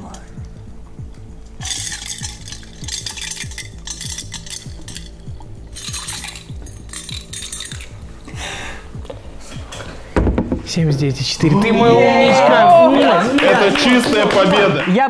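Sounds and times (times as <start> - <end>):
ice clinking against glass: 1.6 - 8.0
liquid splashing: 1.6 - 8.3.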